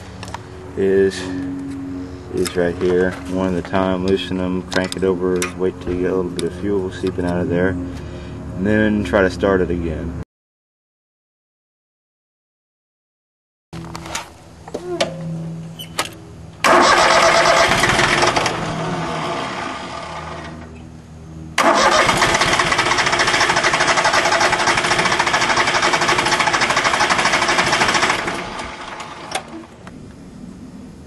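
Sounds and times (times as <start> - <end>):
diesel engine cranking: 15.7 - 20.9, 21.6 - 29.9.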